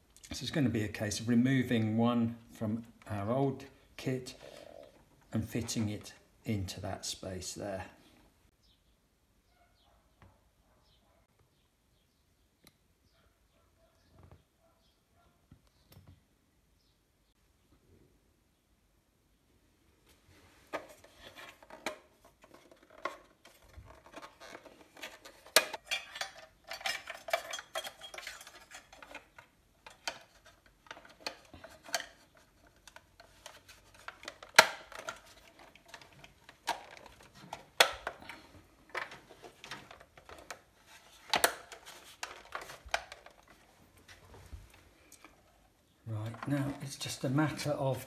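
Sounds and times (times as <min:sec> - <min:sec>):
plastic and metal parts rattling: 0:20.5 - 0:48.0.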